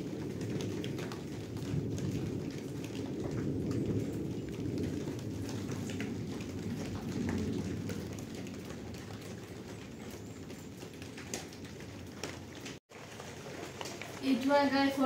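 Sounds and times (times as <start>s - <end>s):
rain on a roof: 0.0s - 15.0s
raindrop ticks: 0.0s - 15.0s.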